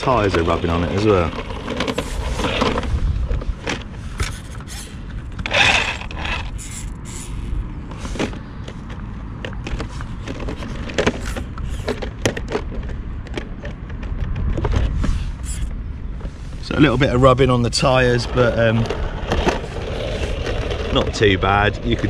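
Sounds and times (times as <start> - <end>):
toy car body rattling: 0.0 - 7.3, 8.0 - 15.0, 18.2 - 22.0
wind buffeting microphone: 0.8 - 6.7, 11.2 - 22.0
loud scrape: 1.1 - 3.2, 4.0 - 8.4, 18.0 - 21.4.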